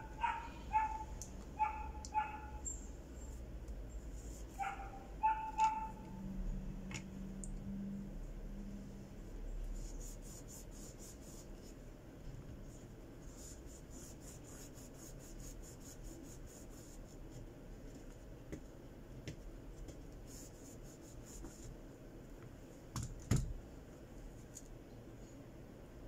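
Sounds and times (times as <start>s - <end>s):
cloth rubbing on phone frame: 9.7s - 11.8s, 12.6s - 17.4s, 20.2s - 21.8s.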